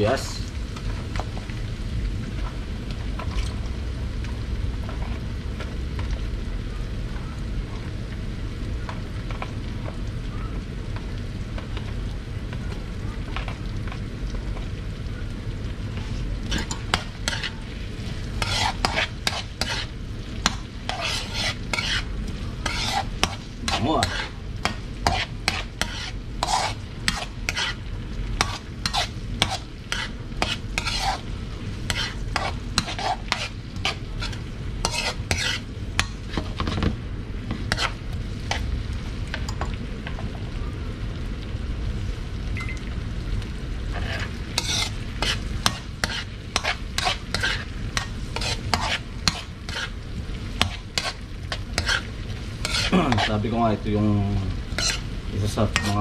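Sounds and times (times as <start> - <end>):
onion and garlic sizzling in oil: 0.0 - 56.0
metal spatula scraping wok: 16.0 - 36.9, 37.5 - 38.7, 43.9 - 53.6, 54.7 - 56.0.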